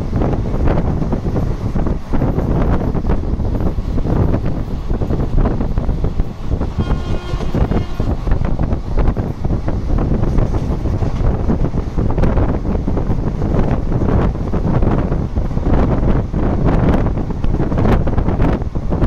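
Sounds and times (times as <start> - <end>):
train running on rails: 0.0 - 19.0
wind buffeting microphone: 0.0 - 19.0
high steady tone: 6.6 - 8.7.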